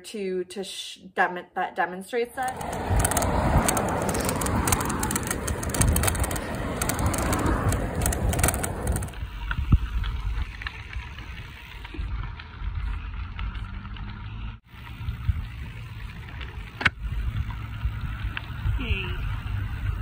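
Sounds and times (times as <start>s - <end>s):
handlebar bag rattling: 2.4s - 9.2s
bicycle tyre noise: 2.4s - 20.0s
rumbling on gravel: 2.4s - 20.0s.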